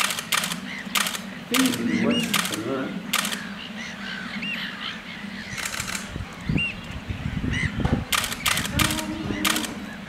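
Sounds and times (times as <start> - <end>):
loud bursts of noise: 0.0 - 3.5, 5.6 - 6.1, 8.1 - 9.9.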